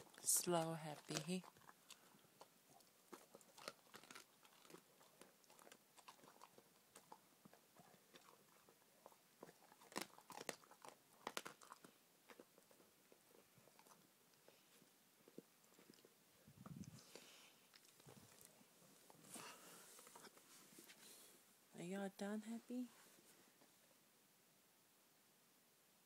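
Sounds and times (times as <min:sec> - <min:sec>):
dog crunching bones: 0:00.0 - 0:16.2.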